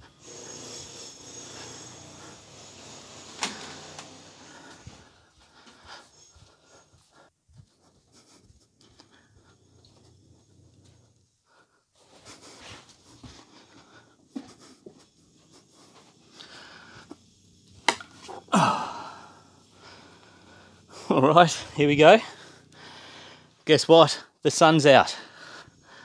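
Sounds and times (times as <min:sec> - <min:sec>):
wooden cabinet scraping and rubbing: 0:00.2 - 0:05.2.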